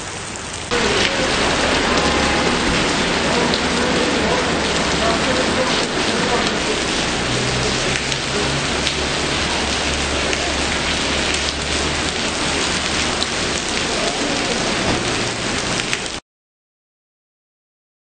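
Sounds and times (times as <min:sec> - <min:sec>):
rain on pavement: 0:00.0 - 0:16.2
sharp drip ticks: 0:04.4 - 0:14.0.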